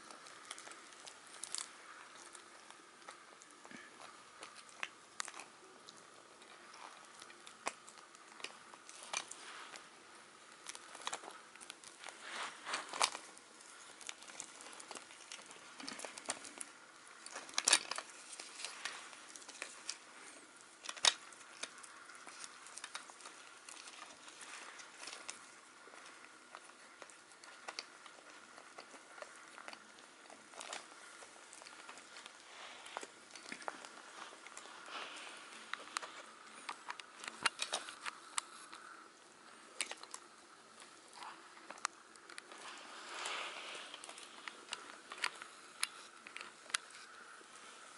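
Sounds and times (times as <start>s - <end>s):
paper crinkling and rustling: 0.0s - 38.9s, 39.5s - 47.9s.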